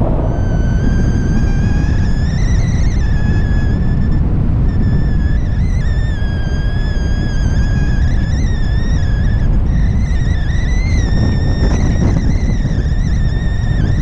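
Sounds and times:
thin high whistling tone: 0:00.0 - 0:14.0
wind rushing over microphone: 0:00.0 - 0:14.0.

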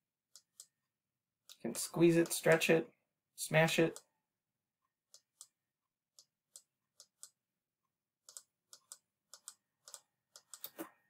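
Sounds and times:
computer mouse clicking: 0:08.2 - 0:10.9.

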